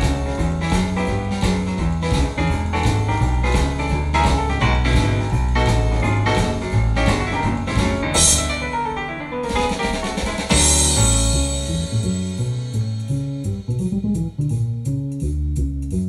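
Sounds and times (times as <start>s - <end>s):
cymbal crashes: 8.2s - 8.8s, 10.2s - 14.3s.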